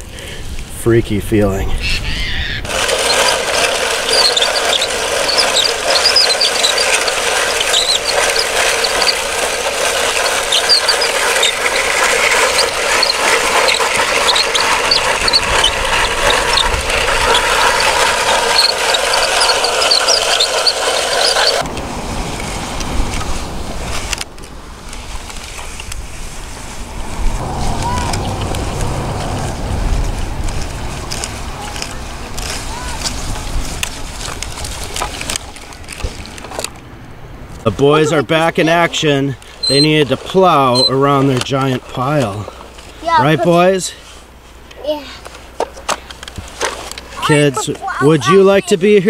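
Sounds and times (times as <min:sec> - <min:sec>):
mechanical whirring with squeals: 0:01.9 - 0:21.6, 0:39.6 - 0:41.2.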